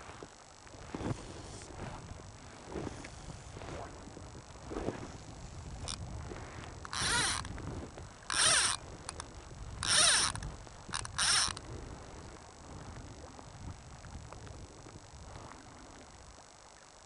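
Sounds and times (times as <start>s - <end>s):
fishing line rasping: 6.8s - 7.6s, 8.3s - 11.6s.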